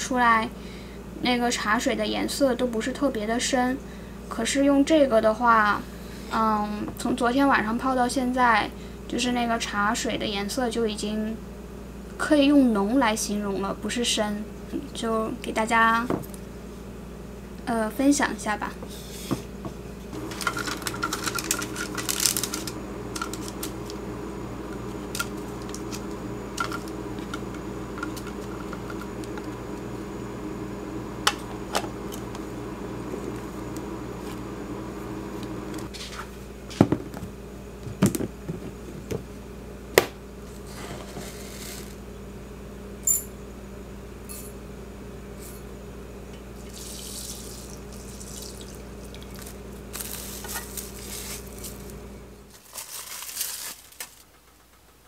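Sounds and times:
steady low hum: 0.0 - 52.6
water poured into glass bowl: 46.6 - 49.3.

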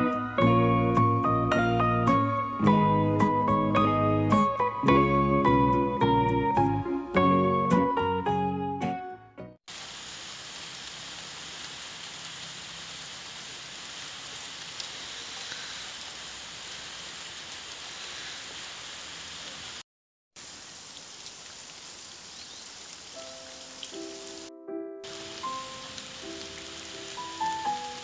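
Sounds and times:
steady rain hiss: 9.7 - 19.8, 20.4 - 28.0.

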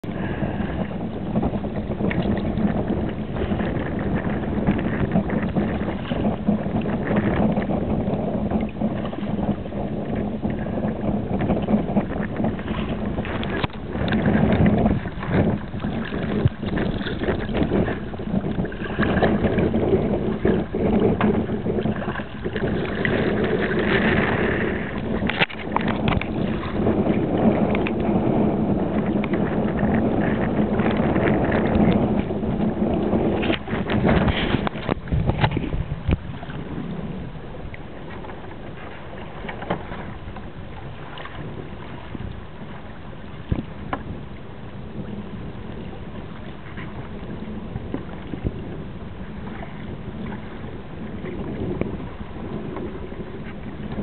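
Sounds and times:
water splashing along hull: 0.0 - 54.0
wind buffeting microphone: 0.0 - 54.0.

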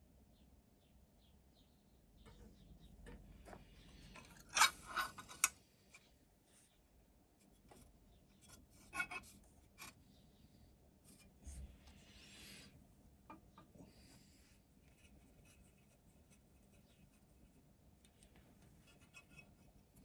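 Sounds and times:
metal scraping: 3.9 - 5.5, 8.4 - 10.0
metal parts clinking: 4.2 - 5.5.

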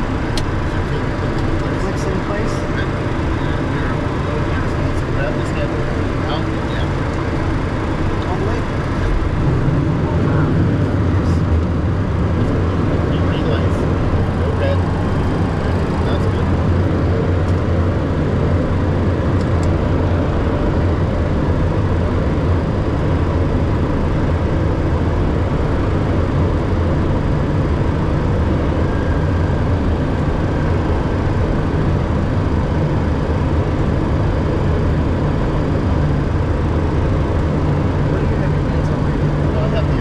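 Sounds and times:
rushing airflow: 0.0 - 22.0
jet engines humming: 0.0 - 40.0.

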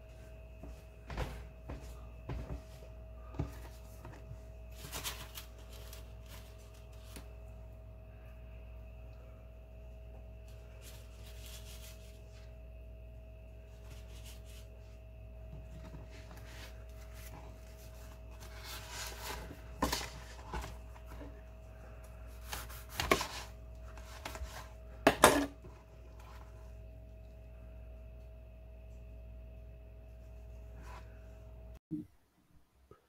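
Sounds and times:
faint steady hum: 0.0 - 33.0
tortilla rustling and scraping: 3.4 - 7.4, 10.4 - 12.5, 13.6 - 24.8.

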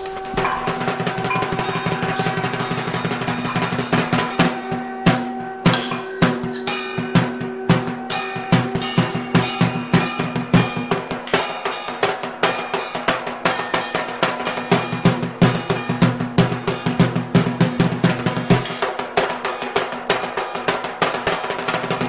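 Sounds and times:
background music with drum beat: 0.0 - 22.0.

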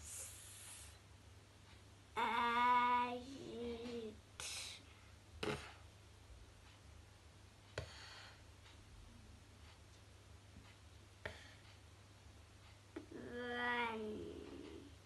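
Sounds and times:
child sounding out letters: 13.1 - 14.5.

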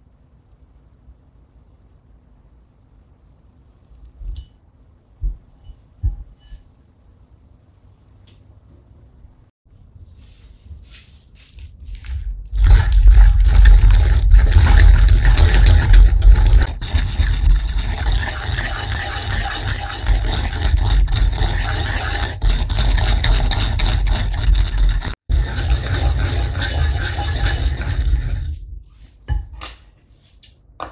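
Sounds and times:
pestle grinding in ceramic mortar: 11.5 - 28.6.

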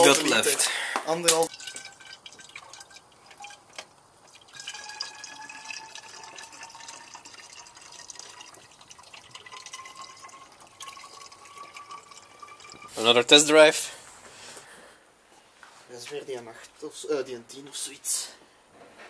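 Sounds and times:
liquid pouring into tank: 1.3 - 13.0.

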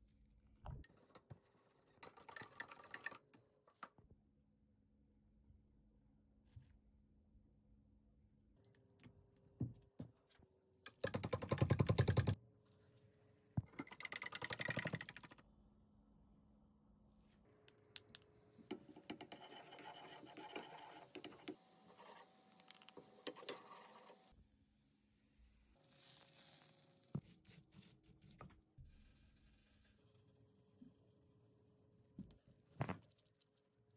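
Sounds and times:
utensil whisking in plastic jug: 1.0 - 3.4.

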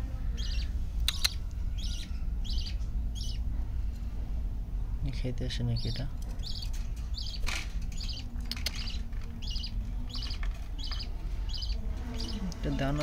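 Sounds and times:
budgerigar chirping: 0.4 - 3.4, 5.7 - 13.0.

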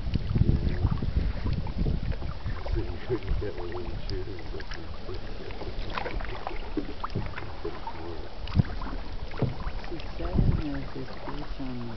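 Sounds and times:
water splashing and trickling: 0.0 - 11.9
wind rumble on microphone: 0.0 - 11.9
thump: 9.4 - 9.6.

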